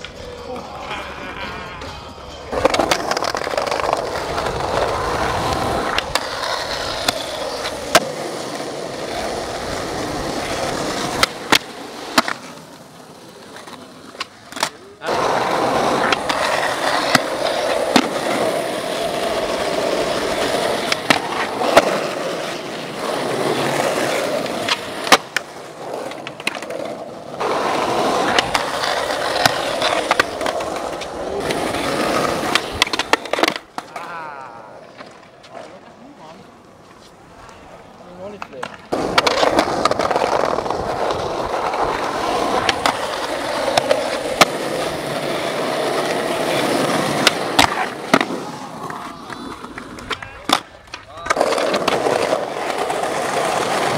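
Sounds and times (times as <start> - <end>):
skateboard wheels rolling on pavement: 0.0 - 53.9
skateboard trucks grinding ledge: 1.8 - 34.0, 38.6 - 53.9
skateboard pops and clacks: 2.5 - 9.0, 10.3 - 12.8, 13.5 - 14.8, 15.6 - 18.7, 19.3 - 34.1, 38.4 - 53.9.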